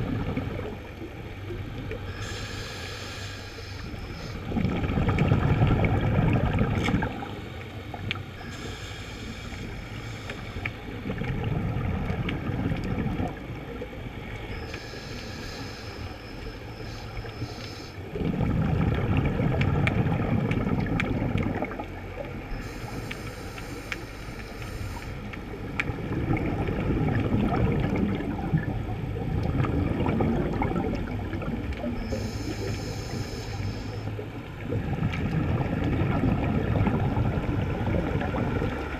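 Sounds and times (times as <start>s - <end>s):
muffled underwater rumble and bubbling: 0.0s - 38.9s
hissing bursts of exhaled bubbles: 2.1s - 7.4s, 8.4s - 13.4s, 14.5s - 21.8s, 26.1s - 38.8s.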